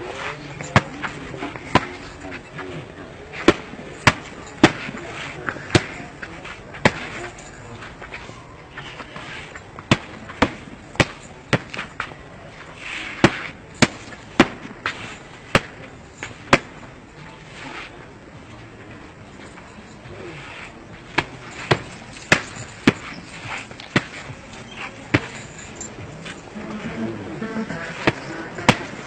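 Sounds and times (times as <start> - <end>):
punches smacking a padded target: 3.4 - 5.0, 9.8 - 11.9, 13.2 - 16.8, 21.1 - 24.3.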